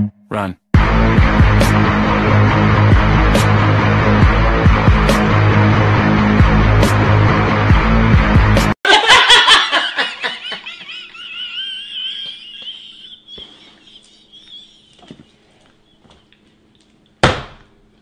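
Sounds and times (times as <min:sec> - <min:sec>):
shrill high-pitched laughter: 0:09.8 - 0:15.2.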